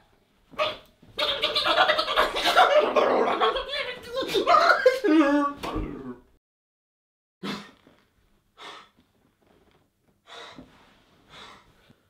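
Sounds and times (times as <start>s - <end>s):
man breathing heavily: 8.6s - 9.0s, 10.2s - 12.0s.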